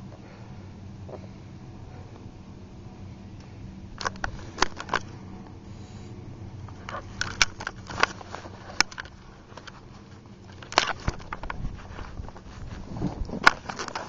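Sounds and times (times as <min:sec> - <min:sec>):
low steady rumble: 0:00.0 - 0:14.0
skis and boots crunching snow: 0:06.9 - 0:14.0.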